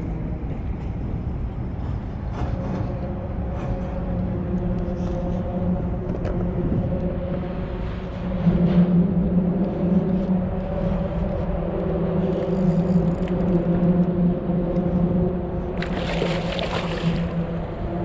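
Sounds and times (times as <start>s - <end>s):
steady low hum: 0.0s - 18.0s
fish thrashing and splashing: 15.8s - 17.6s.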